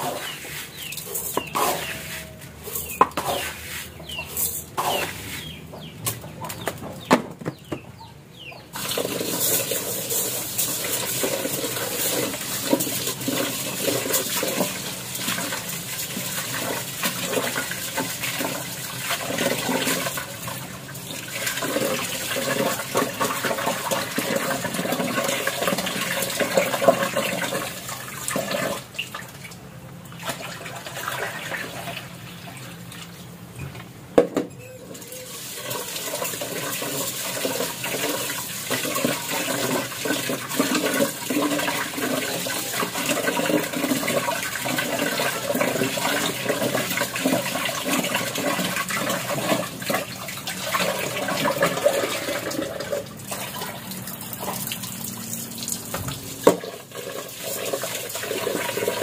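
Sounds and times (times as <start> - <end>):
chickens clucking: 0.0 - 14.8
tap water running into metal pot: 8.8 - 32.0, 34.9 - 59.0.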